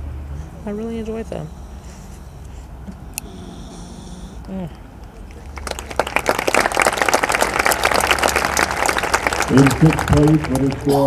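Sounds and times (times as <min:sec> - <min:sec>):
stadium crowd clapping: 0:05.0 - 0:11.0.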